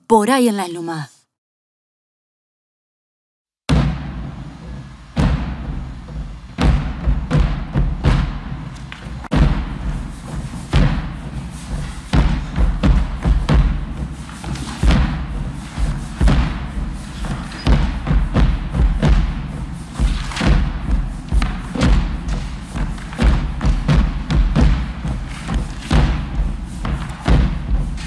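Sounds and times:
bass drum beaten with sticks: 3.7s - 28.0s.

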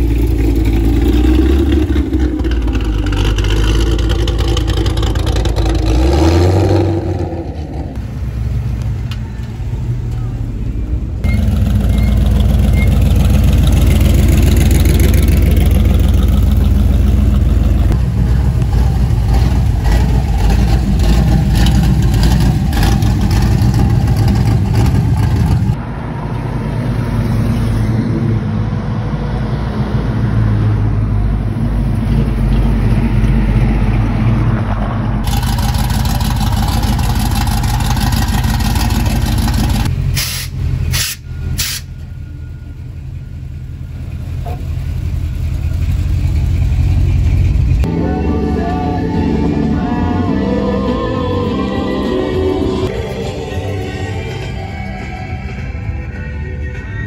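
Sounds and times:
car engines rumbling past: 0.0s - 56.1s.

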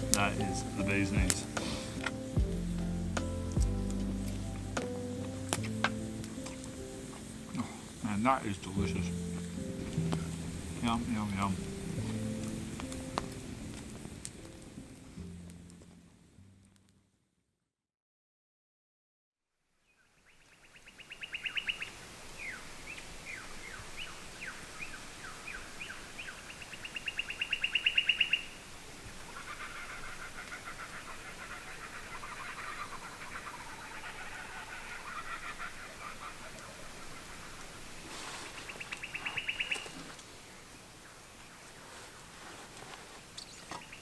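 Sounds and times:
kookaburra calling: 20.8s - 22.6s, 23.3s - 40.2s.

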